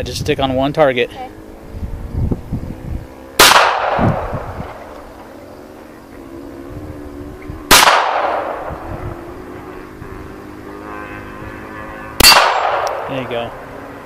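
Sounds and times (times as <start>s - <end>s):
pistol shots echoing: 3.4s - 4.4s, 7.7s - 8.7s, 12.2s - 13.2s.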